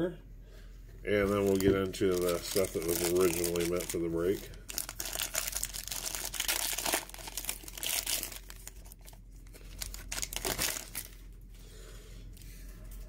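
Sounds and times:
cellophane wrapper crinkling and tearing: 1.2 - 11.4.

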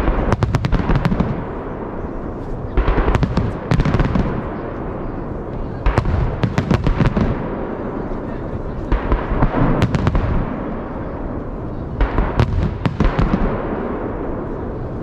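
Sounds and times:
fireworks bangs: 0.0 - 15.0.

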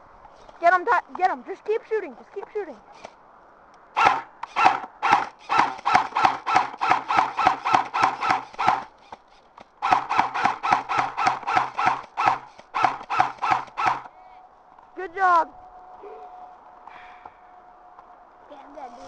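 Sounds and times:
airsoft rifle rapid firing: 4.0 - 9.1, 9.8 - 14.1.

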